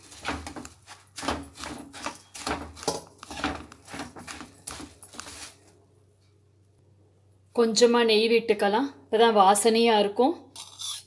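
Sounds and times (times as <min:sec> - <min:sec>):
metal spatula scraping in pan: 0:10.6 - 0:11.0.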